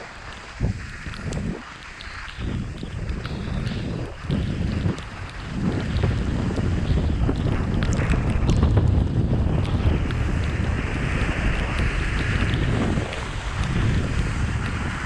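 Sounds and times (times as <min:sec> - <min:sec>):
sliding on packed snow: 0:00.0 - 0:15.0
wind buffeting microphone: 0:00.0 - 0:15.0.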